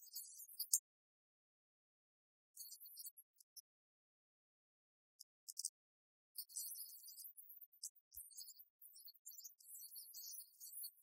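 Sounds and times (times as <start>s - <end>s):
faint high-pitched crackle: 0.0s - 1.0s, 2.5s - 3.8s, 5.2s - 11.0s.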